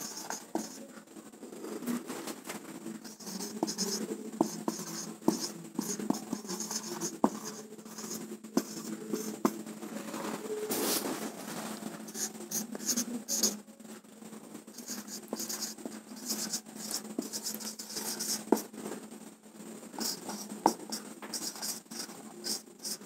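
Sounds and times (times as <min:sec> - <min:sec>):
marker scratching on whiteboard: 0:00.0 - 0:00.8, 0:03.0 - 0:09.6, 0:12.0 - 0:13.6, 0:14.7 - 0:18.7, 0:20.0 - 0:23.0
marker tapping on board: 0:03.2 - 0:09.6, 0:16.4 - 0:18.6.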